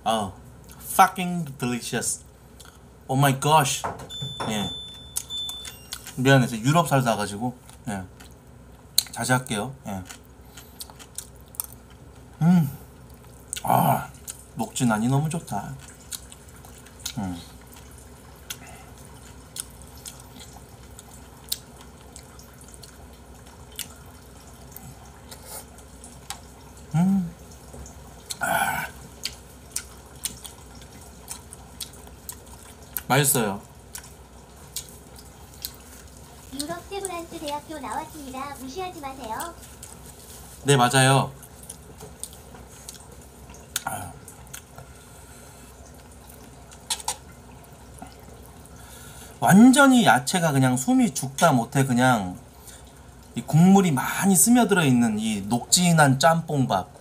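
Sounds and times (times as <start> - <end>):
short hummed voice: 12.4 - 12.8, 13.6 - 14.2, 26.9 - 27.4, 28.4 - 29.0, 43.8 - 44.2
wet mouth clicks while chewing: 33.9 - 35.8, 41.6 - 43.1, 43.7 - 44.9, 46.3 - 47.3.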